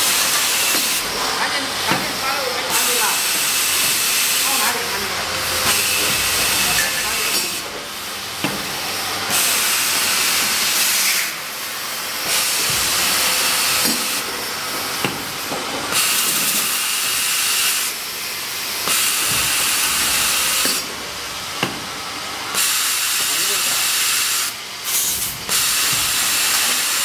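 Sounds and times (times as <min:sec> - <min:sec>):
loud air hiss bursts: 0:00.0 - 0:27.0
pneumatic clamp clicks and clunks: 0:13.8 - 0:14.2, 0:15.0 - 0:17.8, 0:18.8 - 0:20.9, 0:24.9 - 0:27.0.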